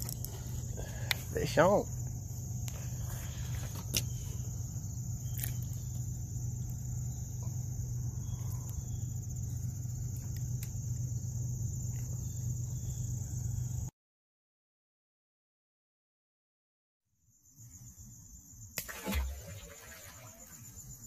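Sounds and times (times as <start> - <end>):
high-pitched insect chorus: 0.0 - 13.9, 17.3 - 21.0
low steady hum: 0.0 - 13.9.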